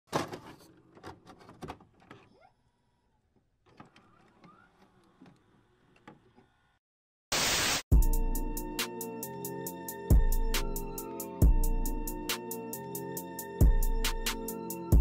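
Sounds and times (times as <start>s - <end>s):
sharp glitch burst: 7.3s - 7.8s.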